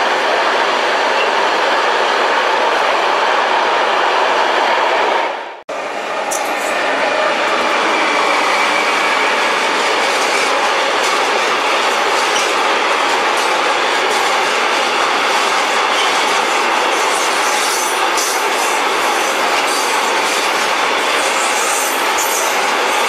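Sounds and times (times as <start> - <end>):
train wheels rolling on rails: 5.7 - 23.0.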